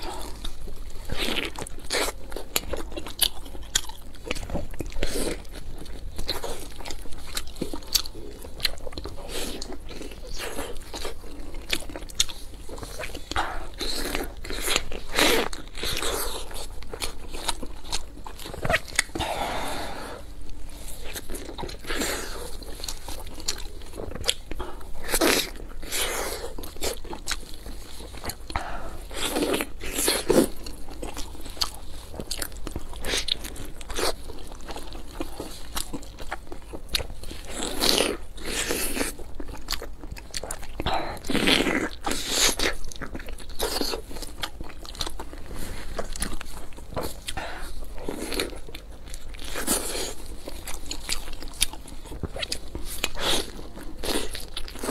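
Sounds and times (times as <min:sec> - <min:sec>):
person chewing crunchy food: 0:00.0 - 0:54.9.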